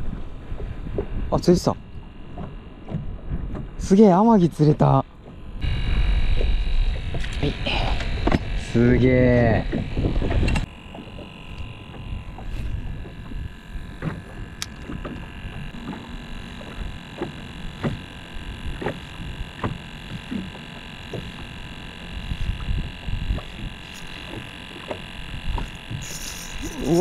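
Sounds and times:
low rumble: 0:05.1 - 0:14.7.

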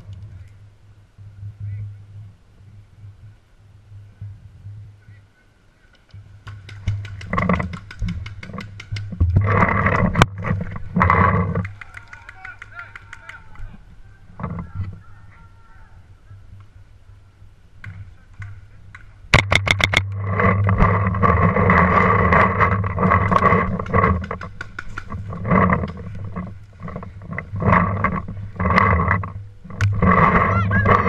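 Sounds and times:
sharp clicks: 0:05.9 - 0:10.3
loud continuous droning: 0:06.4 - 0:31.0.

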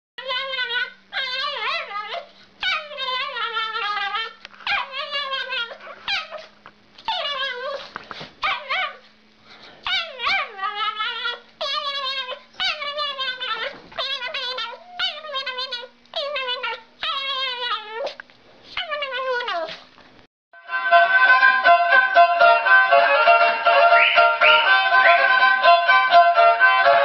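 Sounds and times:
small dog yowling: 0:00.2 - 0:09.1, 0:09.8 - 0:18.2, 0:18.8 - 0:19.8.

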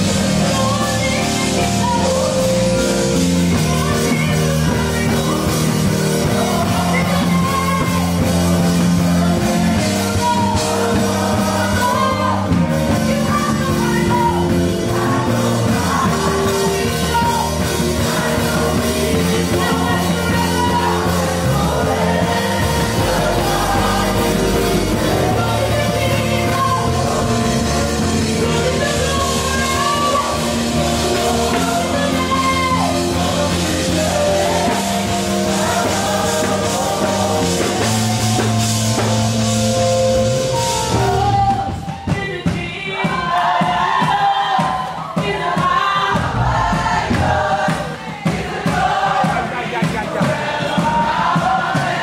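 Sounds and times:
band with electric guitar and bass: 0:00.0 - 0:42.7, 0:44.9 - 0:48.3
woman singing into microphone: 0:03.5 - 0:38.0.

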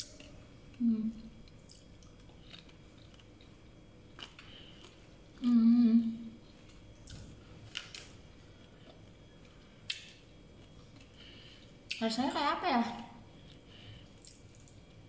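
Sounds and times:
woman humming mmm: 0:00.8 - 0:01.3, 0:05.4 - 0:06.4
chewing noises: 0:01.4 - 0:05.5, 0:13.4 - 0:15.0.

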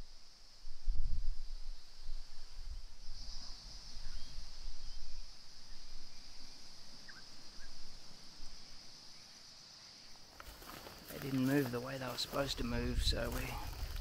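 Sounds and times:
wind rumbling on microphone: 0:00.0 - 0:08.7, 0:12.2 - 0:14.0
high-pitched insect drone: 0:00.0 - 0:14.0
faint bird chirps: 0:01.6 - 0:10.2.

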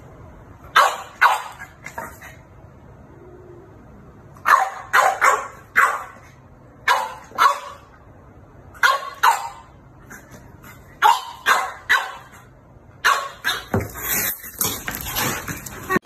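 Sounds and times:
dog barking: 0:00.7 - 0:01.8, 0:04.4 - 0:07.9, 0:08.8 - 0:09.8, 0:11.0 - 0:13.7.

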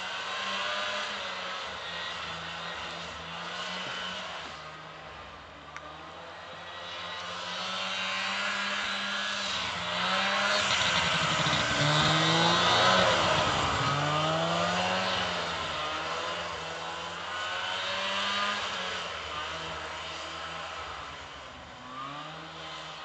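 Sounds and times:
snowmobile engine revving past: 0:00.0 - 0:04.7, 0:06.0 - 0:23.0.

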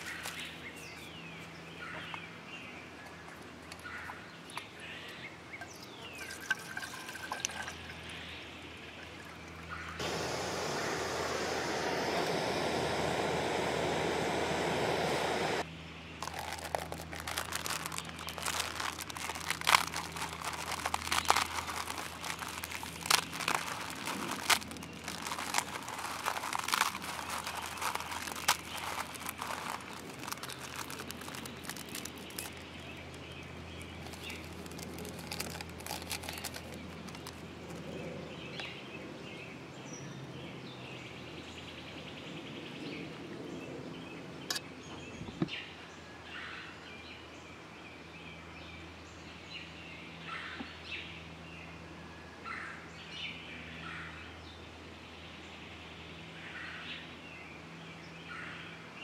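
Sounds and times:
plastic packet crinkling: 0:16.2 - 0:37.9.

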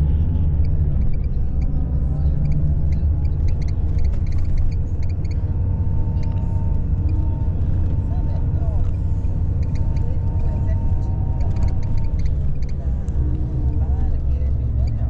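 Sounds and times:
coach engine and road rumble: 0:00.0 - 0:15.0
interior rattles clicking: 0:00.5 - 0:15.0.

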